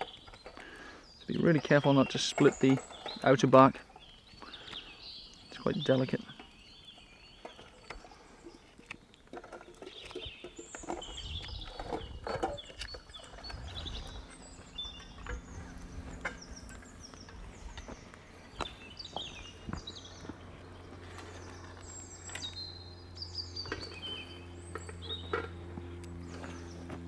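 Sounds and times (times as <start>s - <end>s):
birds chirping: 0.0s - 27.0s.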